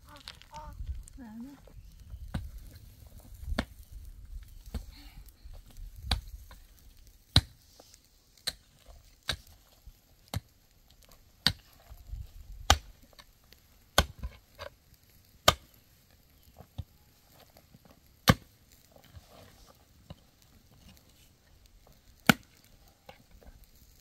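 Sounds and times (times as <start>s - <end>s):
pick striking stony soil: 7.3s - 7.6s, 8.4s - 9.7s, 11.4s - 11.8s, 13.9s - 14.8s, 22.2s - 23.2s.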